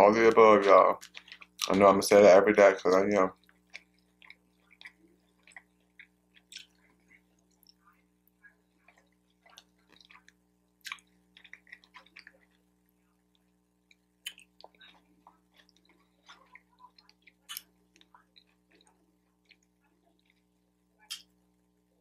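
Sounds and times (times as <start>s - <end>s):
faint hum: 0.0s - 22.0s
chewing with mouth smacks: 0.9s - 1.8s, 2.8s - 21.3s.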